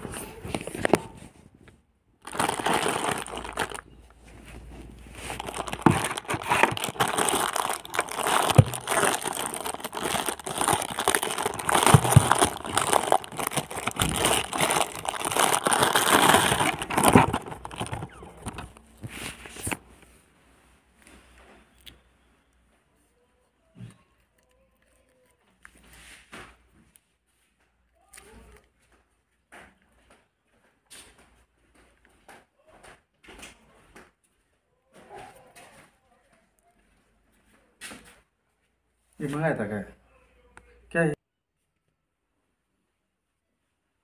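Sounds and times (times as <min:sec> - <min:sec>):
plastic bag crinkling: 0:02.2 - 0:19.8.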